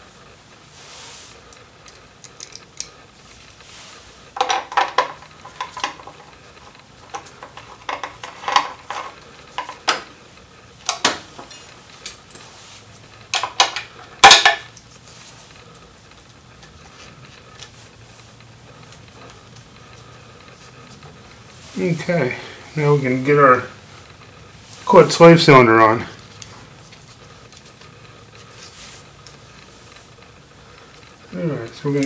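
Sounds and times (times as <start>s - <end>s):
small clicks and taps of parts: 1.5s - 2.9s.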